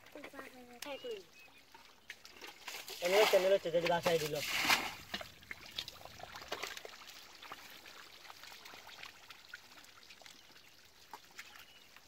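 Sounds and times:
small ticks and crackles: 0:00.0 - 0:03.0
water trickling: 0:00.0 - 0:12.0.

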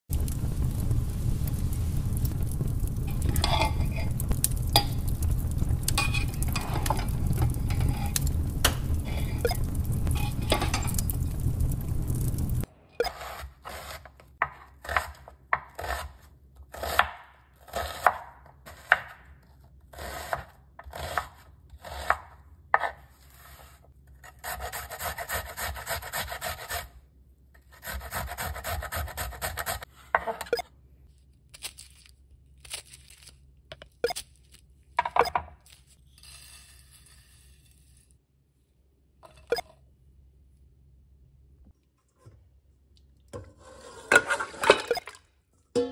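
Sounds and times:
loud low rumbling: 0:00.1 - 0:12.7
grating: 0:03.0 - 0:11.0, 0:22.8 - 0:26.9, 0:27.6 - 0:29.9
knife chopping on wooden board: 0:22.0 - 0:23.0.

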